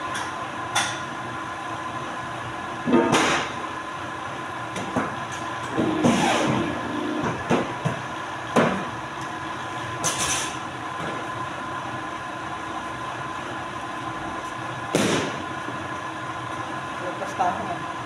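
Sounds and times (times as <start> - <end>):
paper cutter humming: 5.7 - 7.5.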